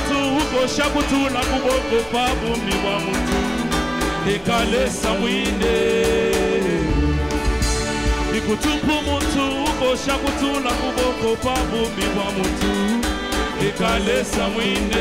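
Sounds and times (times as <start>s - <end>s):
people singing: 0.0s - 7.6s, 8.3s - 15.0s
drum kit beat: 0.0s - 15.0s.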